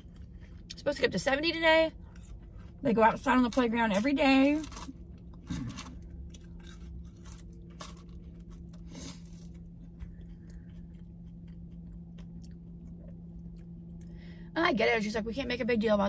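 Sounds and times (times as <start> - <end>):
person chewing crunchy food: 0.0 - 0.8, 1.9 - 2.8, 3.9 - 14.2
steady low hum: 0.0 - 16.0.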